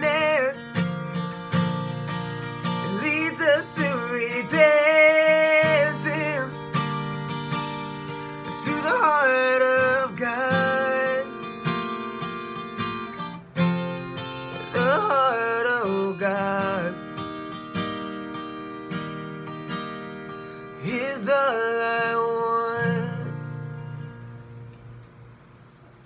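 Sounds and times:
man singing: 0:00.0 - 0:01.0, 0:02.7 - 0:06.8, 0:08.4 - 0:11.6, 0:14.6 - 0:17.0, 0:20.8 - 0:23.6
acoustic guitar strumming: 0:00.0 - 0:26.0.

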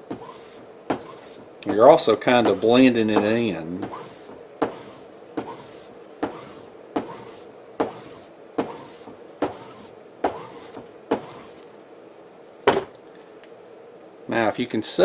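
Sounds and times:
strop scraping blade edge: 0:00.1 - 0:11.6.

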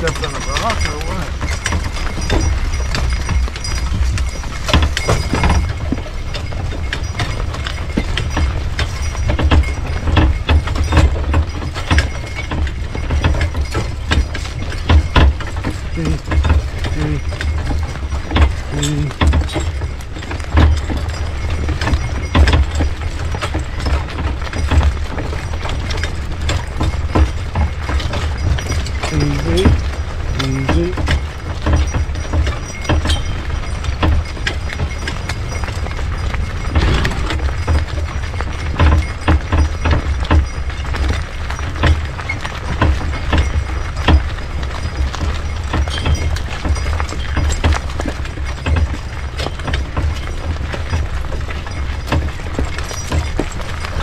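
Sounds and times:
horses hooves clopping: 0:00.0 - 0:54.0
rig knocks and rattles: 0:00.0 - 0:54.0
low rumble: 0:36.4 - 0:38.5.

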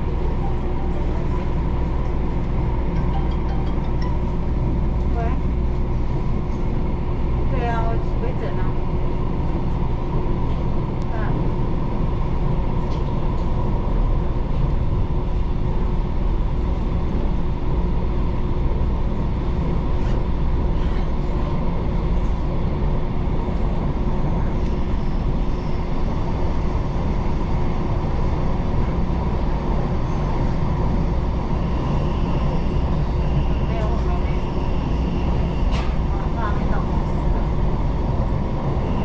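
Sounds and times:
train wheels rumbling on rail: 0:00.0 - 0:39.0.

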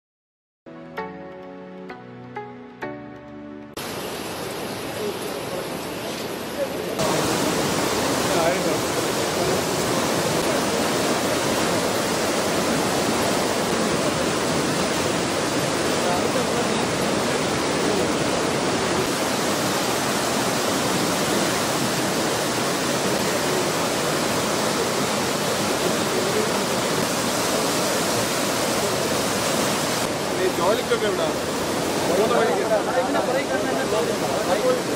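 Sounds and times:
floodwater rushing: 0:03.8 - 0:34.9.

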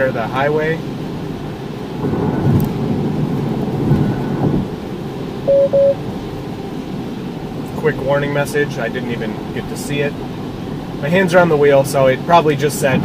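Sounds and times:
tyres rumbling on wet road: 0:00.0 - 0:05.4, 0:06.0 - 0:13.0
rain on car: 0:00.0 - 0:13.0
car warning beeps: 0:05.5 - 0:06.0.

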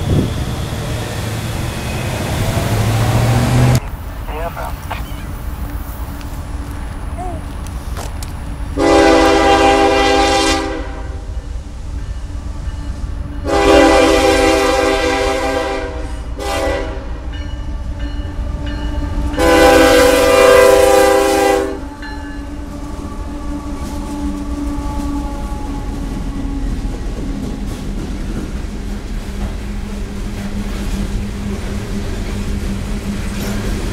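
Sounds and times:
train cars rumbling past: 0:00.0 - 0:33.9
locomotive air horn blasts: 0:08.8 - 0:11.2, 0:13.4 - 0:17.2, 0:19.4 - 0:22.0.

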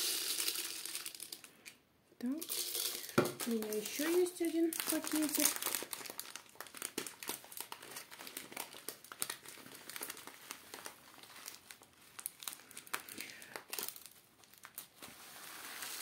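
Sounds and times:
grains pouring into plastic tray: 0:00.0 - 0:01.5, 0:02.4 - 0:05.6, 0:15.1 - 0:16.0
plastic bag crinkling: 0:02.3 - 0:16.0.

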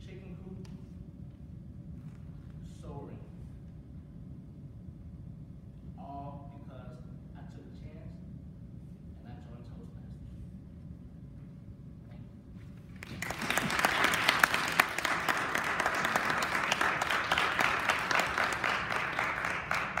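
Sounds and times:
audience applauding: 0:13.0 - 0:20.0.

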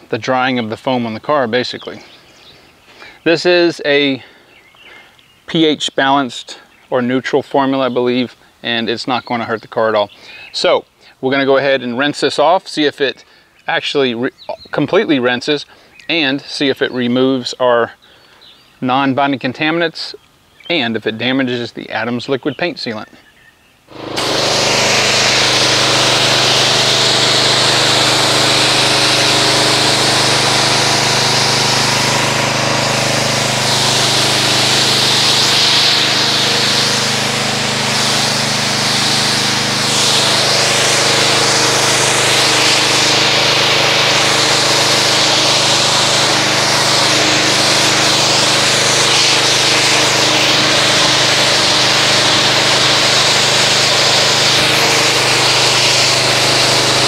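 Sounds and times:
pressure washer motor humming: 0:23.9 - 0:57.0
water jet hissing: 0:23.9 - 0:57.0.

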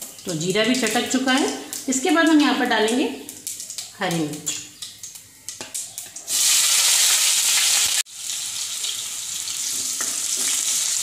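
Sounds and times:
chillies sizzling in hot oil: 0:00.0 - 0:11.0.

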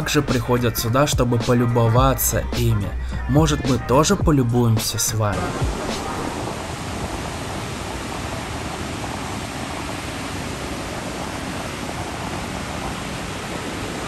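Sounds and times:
sea surf on sandy shore: 0:05.0 - 0:14.0.

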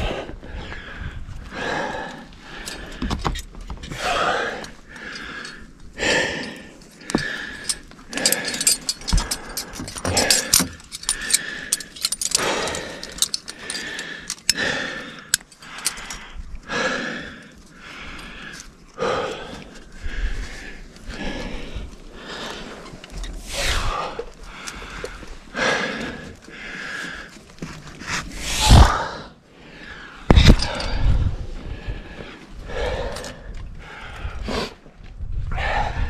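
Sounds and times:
person breathing hard: 0:00.0 - 0:27.4, 0:28.2 - 0:36.0
metal gear clinking and jangling: 0:06.4 - 0:16.2, 0:30.3 - 0:31.1.

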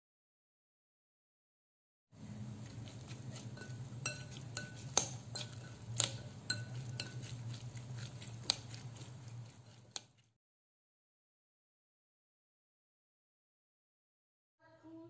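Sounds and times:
steady low hum: 0:02.2 - 0:10.0
spoon stirring salad: 0:02.2 - 0:10.3
metal spoon clinking on ceramic bowl: 0:02.6 - 0:09.6.

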